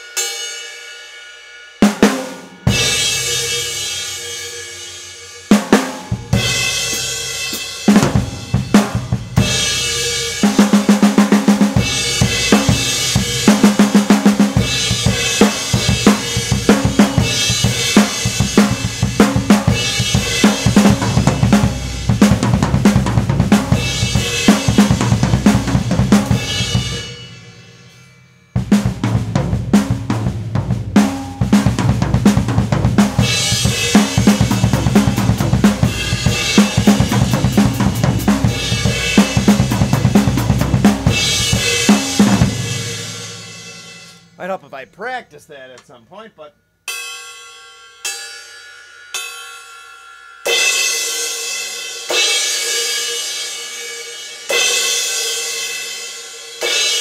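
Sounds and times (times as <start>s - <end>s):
drum kit played hard: 0.0s - 45.9s, 50.5s - 57.0s
crash cymbals ringing: 23.7s - 29.7s, 41.1s - 45.2s, 46.2s - 57.0s.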